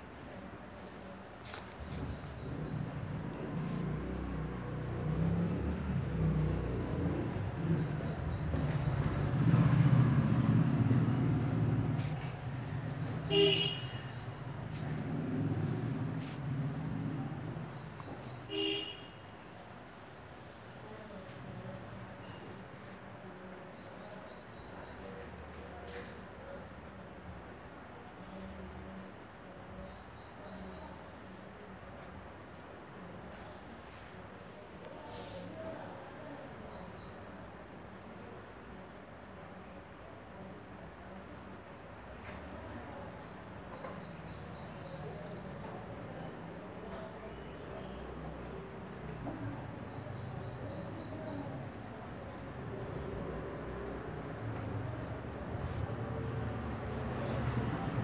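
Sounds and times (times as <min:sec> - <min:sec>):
insect chirping: 0:00.5 - 0:58.0.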